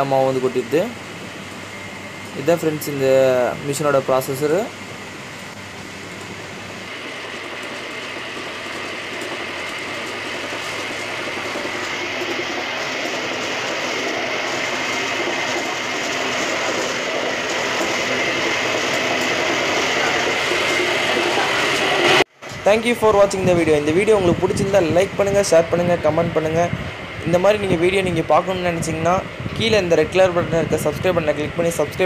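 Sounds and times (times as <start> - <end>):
wet grinder grinding: 6.2 - 22.2.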